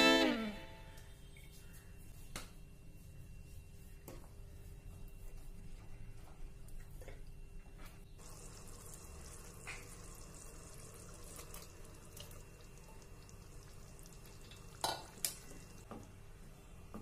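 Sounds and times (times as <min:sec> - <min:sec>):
gravy simmering in a pan: 0:08.1 - 0:15.9.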